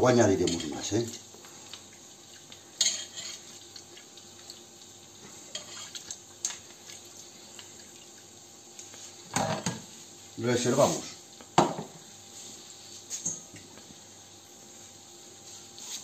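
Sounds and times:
liquid trickling: 0.8s - 8.8s.

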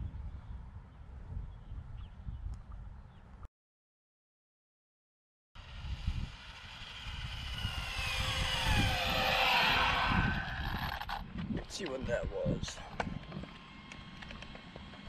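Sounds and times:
electric motor high whine: 5.6s - 11.5s, 12.6s - 15.0s.

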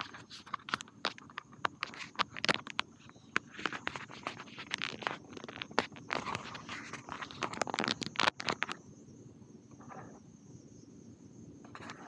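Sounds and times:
fingers rubbing on camera microphone: 0.0s - 8.8s
crickets chirping: 0.0s - 12.0s.

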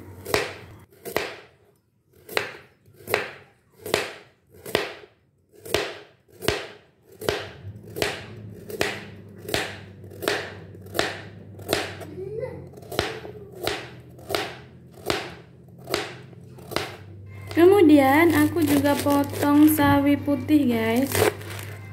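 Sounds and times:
knife crunching through carrot: 15.0s - 19.9s, 20.9s - 21.9s.

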